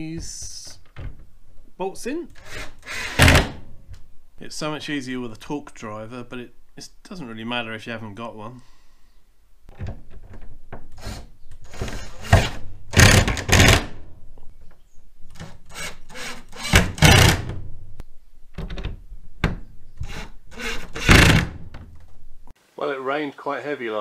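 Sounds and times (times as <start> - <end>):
impact driver bursts: 15.8 - 17.5.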